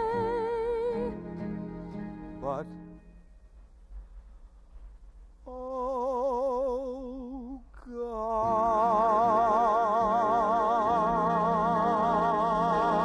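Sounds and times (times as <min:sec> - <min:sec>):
man singing held notes with vibrato: 0:05.4 - 0:13.0.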